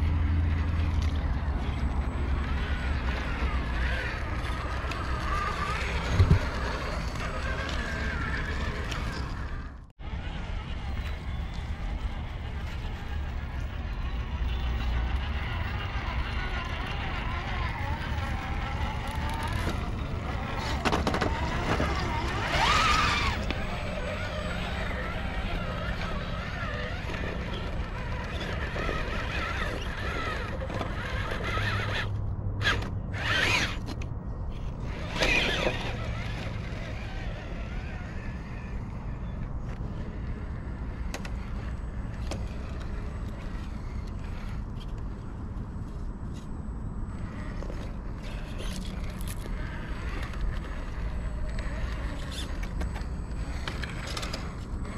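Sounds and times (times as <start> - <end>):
electric motor whine: 0.3 - 33.8.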